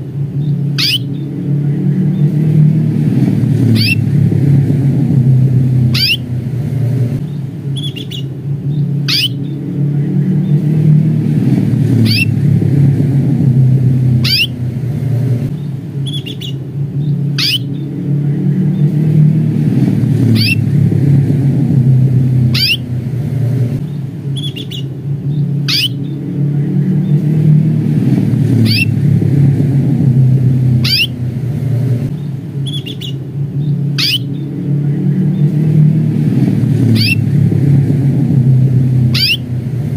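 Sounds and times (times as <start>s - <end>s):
steady low rumble: 0.0s - 39.9s
canary call notes: 0.4s - 1.4s, 3.6s - 4.1s, 5.6s - 9.6s, 11.9s - 12.4s, 14.1s - 14.7s, 15.6s - 18.0s, 20.2s - 20.7s, 22.2s - 23.2s, 23.8s - 26.2s, 28.5s - 29.0s, 30.7s - 31.3s, 32.6s - 34.6s, 36.8s - 37.3s, 38.9s - 39.8s
soft bird chirps: 0.4s - 2.6s, 3.6s - 4.0s, 5.8s - 6.3s, 7.2s - 9.6s, 11.9s - 12.3s, 14.2s - 14.6s, 15.5s - 19.2s, 20.2s - 20.6s, 22.5s - 22.9s, 23.8s - 26.2s, 28.5s - 28.9s, 30.8s - 31.2s, 32.1s - 35.7s, 36.8s - 37.2s, 39.1s - 39.6s.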